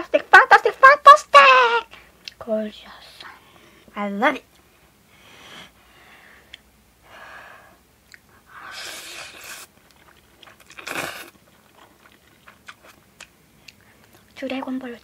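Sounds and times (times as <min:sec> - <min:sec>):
person chewing noodles noisily: 0:08.1 - 0:14.7.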